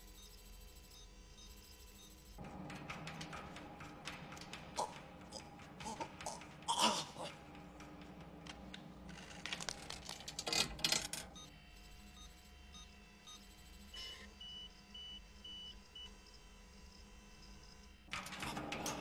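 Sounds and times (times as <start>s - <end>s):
cable rigging clicks and rattles: 8.4s - 11.3s.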